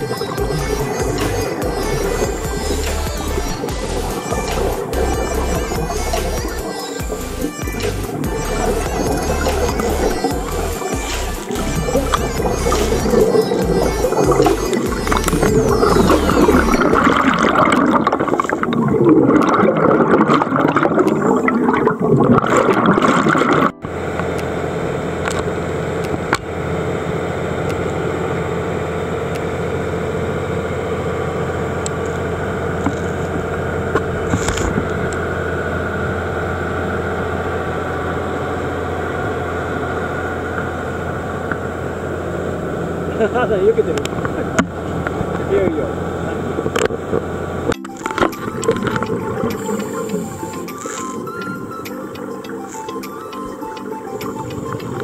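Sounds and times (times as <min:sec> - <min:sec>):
water rushing past hull: 0:00.0 - 0:25.2
loud churning sound: 0:00.0 - 0:29.2
boat engine running: 0:00.0 - 0:55.0.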